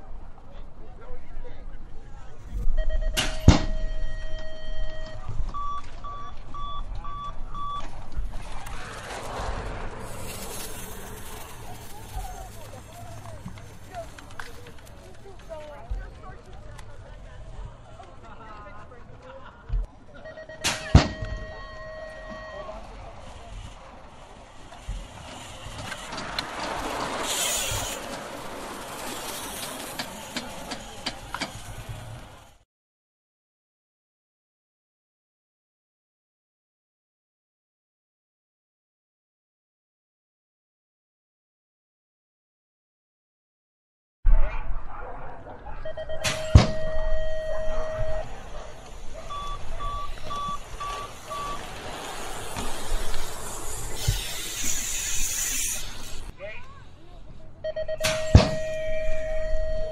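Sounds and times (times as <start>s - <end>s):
short electronic beeps: 2.8s - 7.9s, 20.2s - 22.7s, 45.8s - 48.3s, 49.3s - 51.7s, 57.6s - 59.9s
bike tyres hissing on asphalt: 8.3s - 15.7s, 22.7s - 32.6s, 48.3s - 57.0s
loud hiss: 50.9s - 56.3s.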